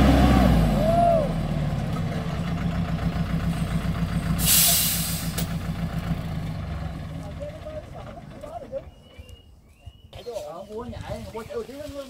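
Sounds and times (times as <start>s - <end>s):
diesel truck engine idling: 0.0s - 8.9s
air brakes hissing: 4.3s - 5.6s.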